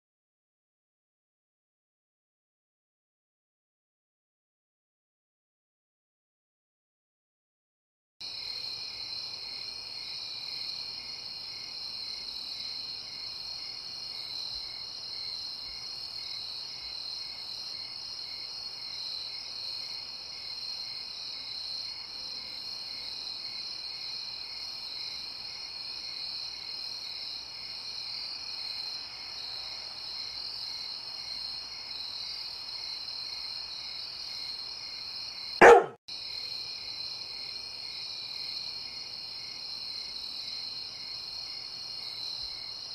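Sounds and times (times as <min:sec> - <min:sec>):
crickets chirping: 0:08.3 - 0:42.9
dog bark: 0:35.6 - 0:36.0.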